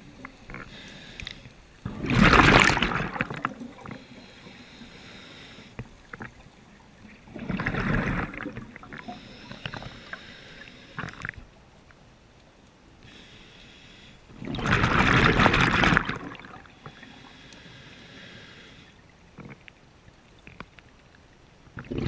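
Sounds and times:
regulator inhale hiss: 0.5s - 1.7s, 3.9s - 6.0s, 9.0s - 11.3s, 13.0s - 14.3s, 16.8s - 19.1s
diver exhaling bubbles: 1.9s - 4.0s, 7.3s - 9.1s, 14.3s - 16.7s, 21.8s - 22.0s.

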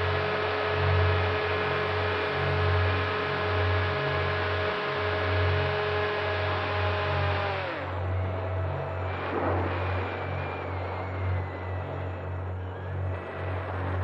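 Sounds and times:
model plane motor whine: 0.0s - 14.0s
low pulsing rumble: 7.4s - 14.0s.

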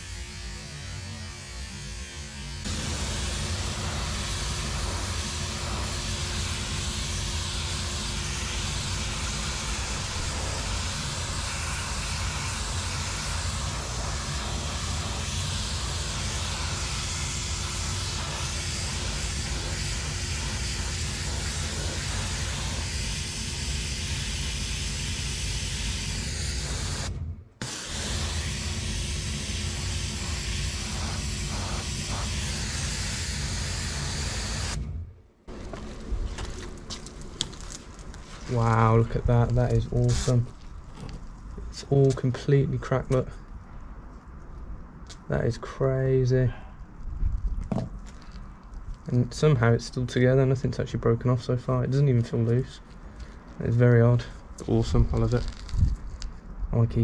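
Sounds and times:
steam cleaner hissing: 0.0s - 34.8s
low steady hum: 0.0s - 57.0s.

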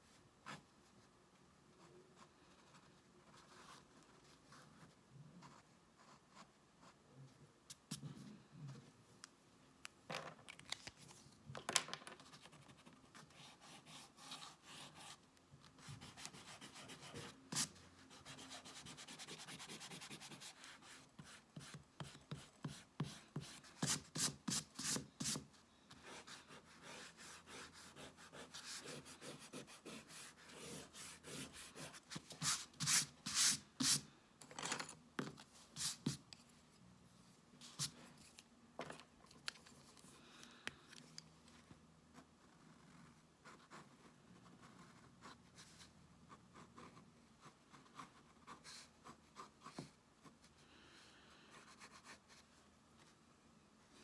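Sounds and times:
rubbing on sketchbook paper: 15.8s - 34.0s.

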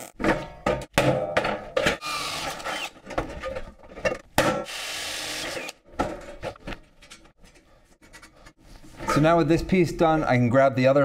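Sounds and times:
power drill boring through steel: 4.7s - 5.8s.

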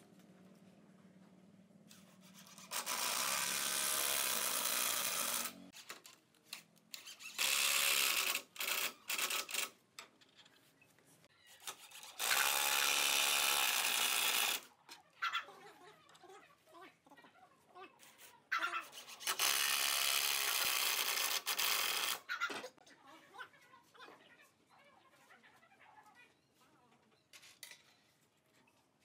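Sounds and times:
cordless drill boring into wood: 2.6s - 5.6s, 7.2s - 9.6s, 12.1s - 14.6s, 19.2s - 22.3s.

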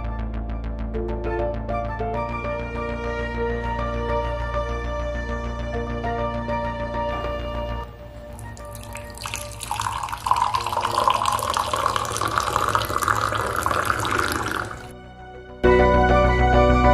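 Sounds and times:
background music: 0.0s - 16.9s
drink pouring into glass: 8.3s - 14.9s.

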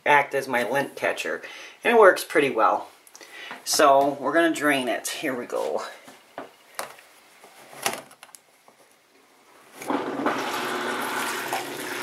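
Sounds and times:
water rushing from drain hose: 9.9s - 12.0s.

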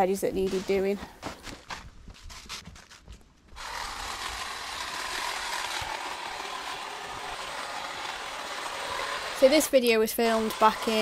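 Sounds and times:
hedge trimmer buzzing: 3.6s - 11.0s.

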